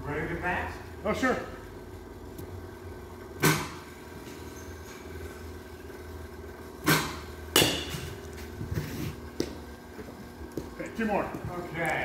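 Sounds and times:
steady low hum: 0.0 - 12.0
bat cracking baseballs: 3.4 - 4.2, 6.7 - 12.0.

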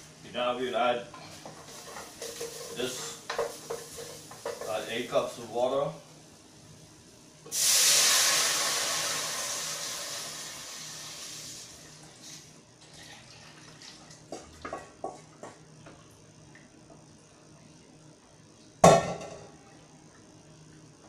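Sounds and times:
water hissing in hot pot: 1.6 - 5.4, 7.5 - 14.0.

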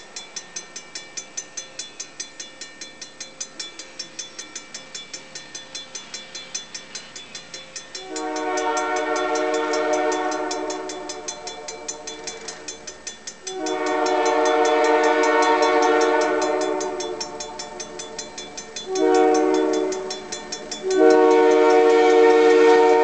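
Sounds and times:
level-crossing warning bell ringing: 0.0 - 23.0
train air horn blast: 8.0 - 12.3, 13.5 - 17.9, 18.9 - 20.1, 20.8 - 23.0.

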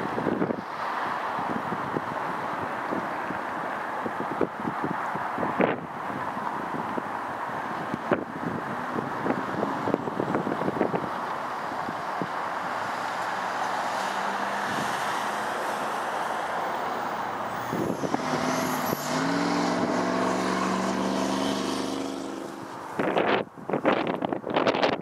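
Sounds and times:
highway traffic noise: 0.0 - 25.0
wind buffeting microphone: 1.4 - 25.0
heavy vehicle engine pulling away: 14.0 - 23.2.

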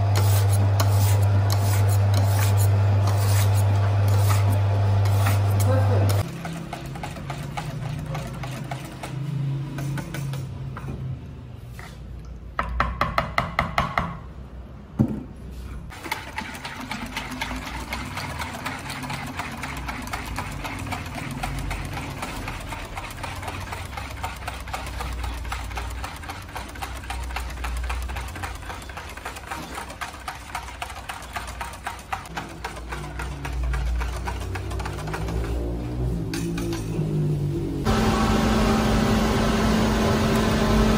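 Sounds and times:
metal spoon stirring in plastic bowl: 0.1 - 10.7, 15.9 - 36.8.

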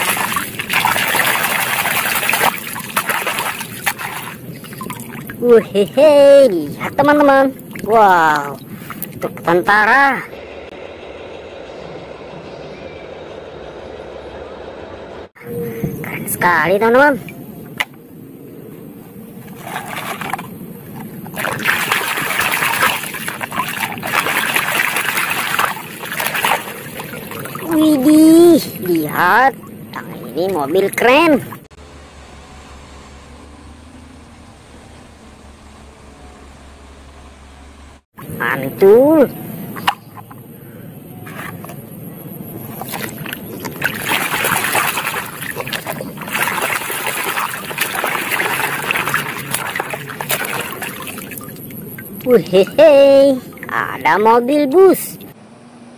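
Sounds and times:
toy splashing in muddy water: 0.0 - 5.8, 6.8 - 9.2, 19.5 - 29.1, 42.6 - 54.4.

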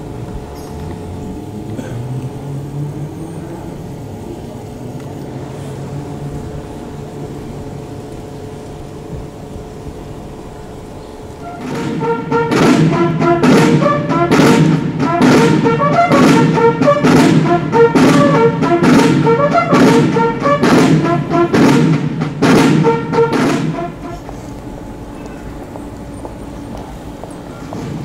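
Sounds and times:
brass melody: 11.2 - 25.2
drum and percussion strikes: 11.4 - 25.2.

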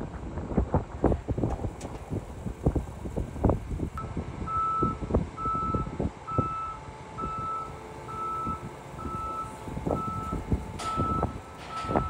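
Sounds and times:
wind buffeting microphone: 0.0 - 12.0
backup alarm beeping: 4.5 - 12.0.

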